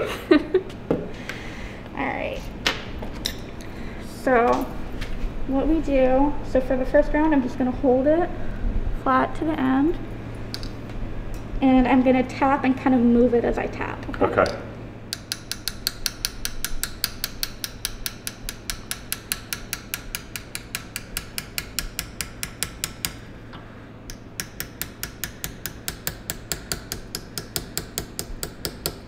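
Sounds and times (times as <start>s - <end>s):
small hammer tapping on metal tool: 14.4s - 23.2s, 24.1s - 29.0s.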